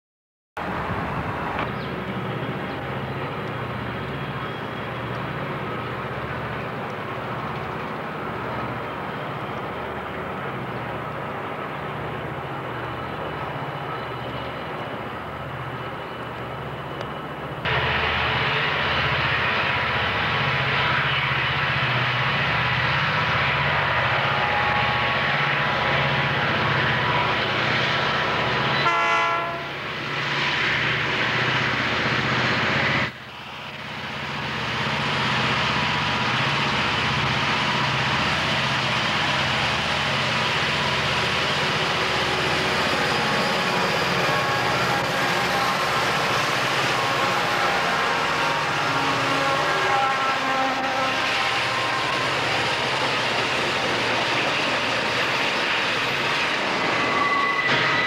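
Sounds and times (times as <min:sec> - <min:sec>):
diesel locomotive engine rumble: 0:00.6 - 0:58.0
locomotive horn blast: 0:28.8 - 0:29.8, 0:46.8 - 0:52.6.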